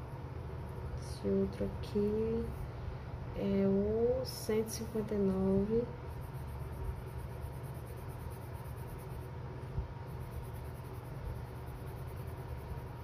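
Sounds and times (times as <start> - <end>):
low steady hum: 0.0 - 13.0
pencil scratching on paper: 6.1 - 9.3, 10.1 - 13.0.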